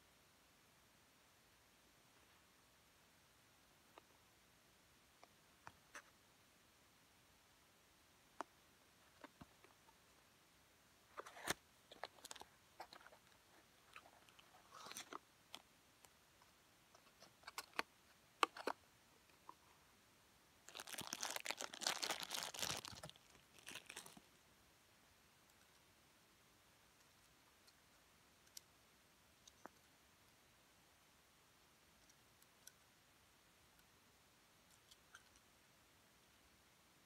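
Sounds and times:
plastic bag crinkling: 20.7 - 24.3.

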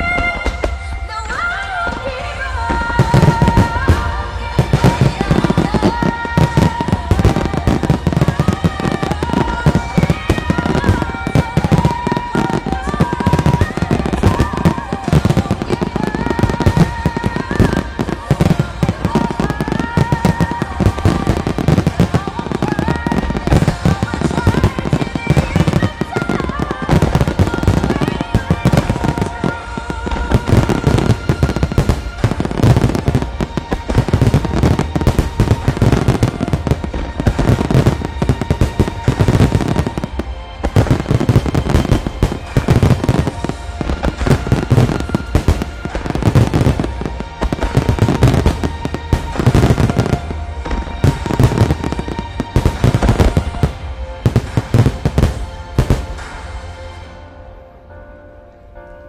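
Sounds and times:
fireworks bursting: 0.0 - 57.6
music playing: 0.0 - 59.0.

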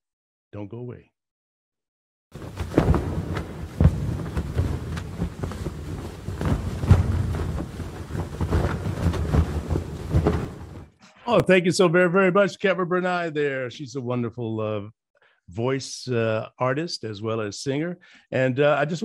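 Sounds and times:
heavy booming hits: 2.4 - 10.8.

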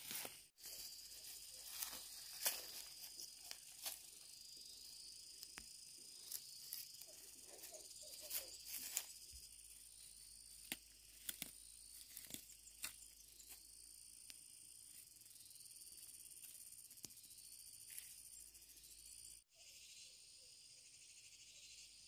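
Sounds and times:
weeds snapping and rustling: 0.0 - 4.3, 10.5 - 13.6.

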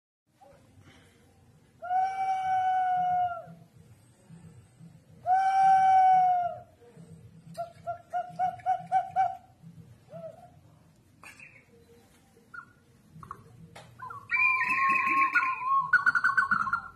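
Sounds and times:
ceramic jar whistling: 14.0 - 16.9
warbling chirps: 14.0 - 16.9.

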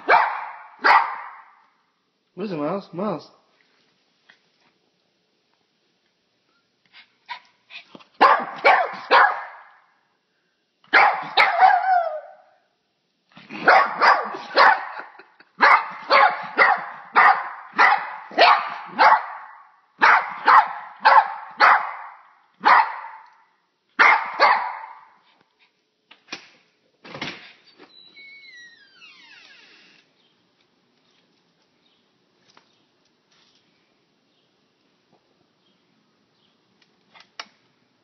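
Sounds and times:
small dog barking: 0.0 - 1.5, 8.2 - 9.8, 10.9 - 12.6, 13.5 - 23.3, 24.0 - 25.2.

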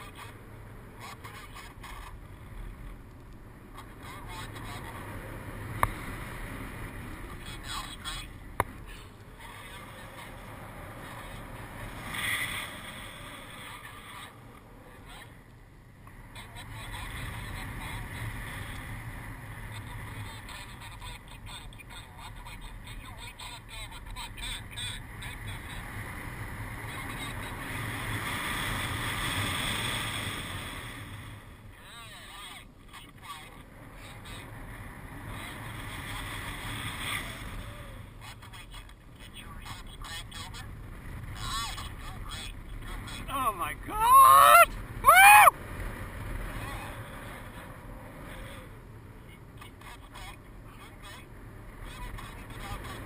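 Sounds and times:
person whooping: 43.3 - 45.5.

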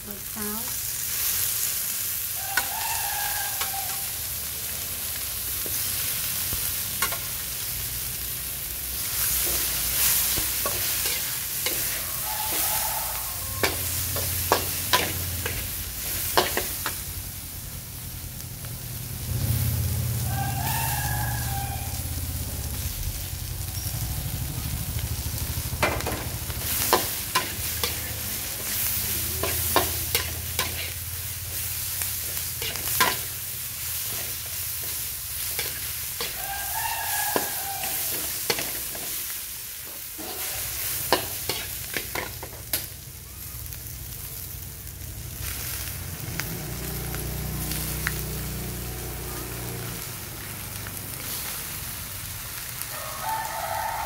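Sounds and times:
food sizzling in hot oil: 0.0 - 54.0
metal spatula scraping a wok: 7.0 - 7.4, 9.0 - 17.0, 25.8 - 42.9.

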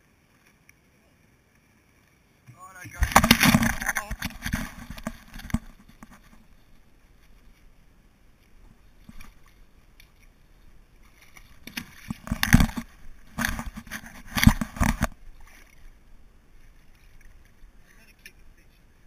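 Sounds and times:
water sloshing: 1.9 - 18.4
inner tube bumping and rubbing: 3.0 - 7.4, 11.0 - 15.8.

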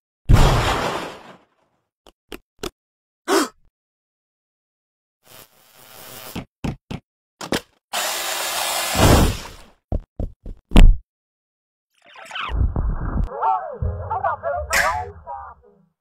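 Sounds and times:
blender whirring: 8.0 - 9.0.

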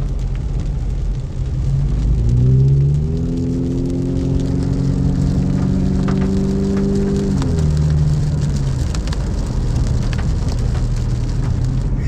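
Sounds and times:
car engine accelerating: 0.0 - 12.0
tyres hissing on wet road: 0.0 - 12.0.

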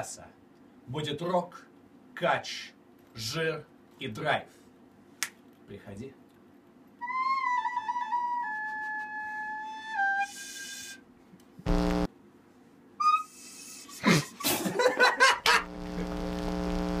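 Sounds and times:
whistle-like wind instrument note: 7.0 - 11.0, 13.0 - 13.6
low electric buzz: 11.6 - 12.1, 15.4 - 17.0
scratchy crackling noises: 11.7 - 12.1.

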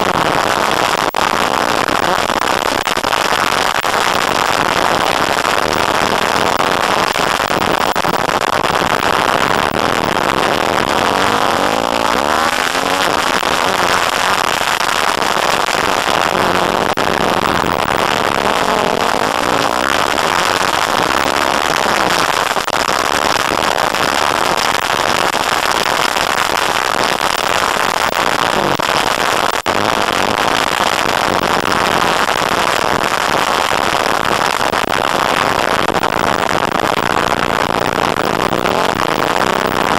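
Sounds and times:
rushing wind noise on microphone: 0.0 - 39.9
dirt bike engine revving: 4.9 - 22.6.

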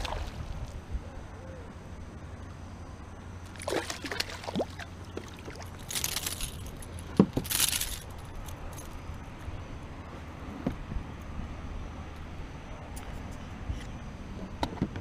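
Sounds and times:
fish splashing at surface: 3.6 - 6.3.

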